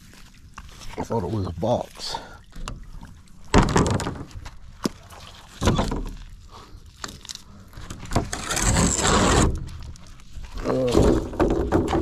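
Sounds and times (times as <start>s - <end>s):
metal sign scraping on concrete: 8.3s - 9.5s.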